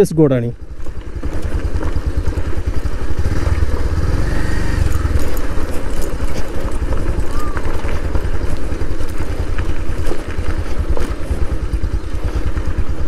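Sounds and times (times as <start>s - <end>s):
motorcycle engine running: 0.0s - 13.0s
light clicks and clatter: 4.8s - 13.0s.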